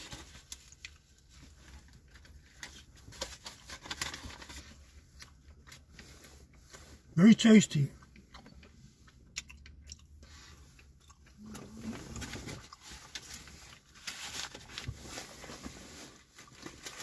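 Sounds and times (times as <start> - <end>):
person chewing crunchy food: 8.0 - 14.0.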